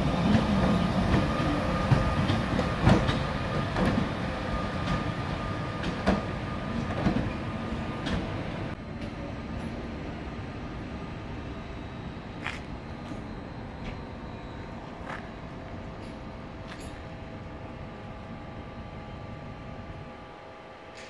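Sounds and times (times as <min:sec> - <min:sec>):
train rumble: 0:00.0 - 0:21.0
train wheels clicking over rail joints: 0:00.2 - 0:04.2.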